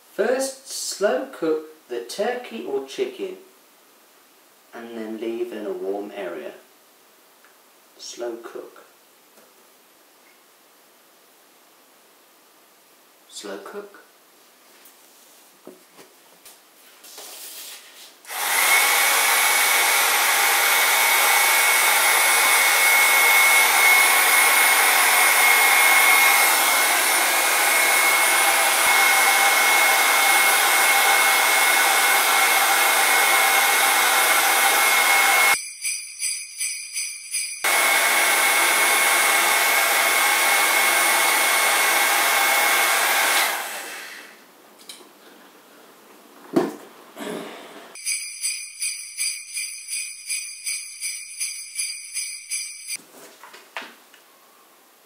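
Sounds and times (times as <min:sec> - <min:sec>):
heat gun blowing with whine: 0:18.2 - 0:35.6, 0:37.7 - 0:44.4.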